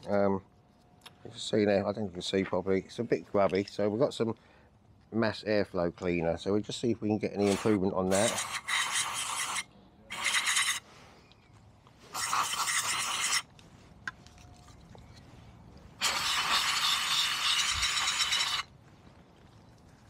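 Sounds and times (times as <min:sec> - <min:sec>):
aerosol can spraying hiss: 0:12.1 - 0:13.4, 0:16.0 - 0:18.7.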